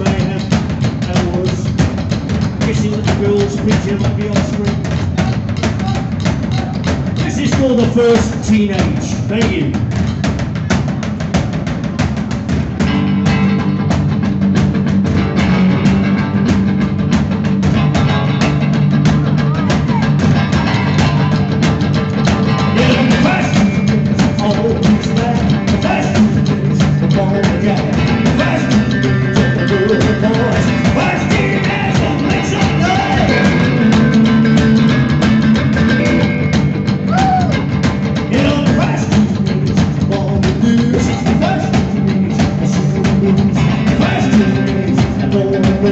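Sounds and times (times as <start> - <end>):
drum kit: 0.0 - 45.9
upright double bass: 0.0 - 45.9
electric guitar: 12.1 - 45.9.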